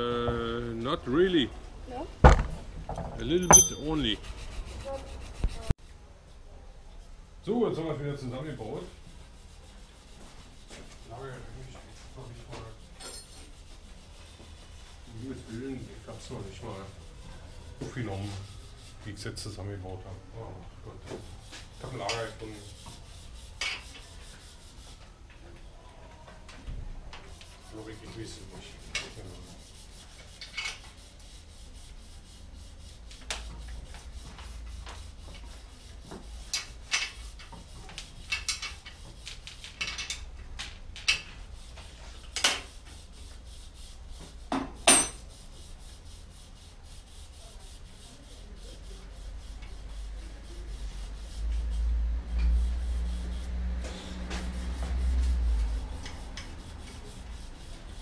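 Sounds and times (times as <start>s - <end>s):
metal tools clinking and knocking: 3.0s - 4.1s.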